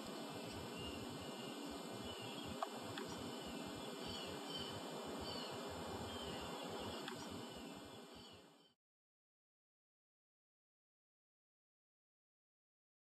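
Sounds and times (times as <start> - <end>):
background hiss: 0.0 - 8.8
faint bird chirps: 0.4 - 8.8.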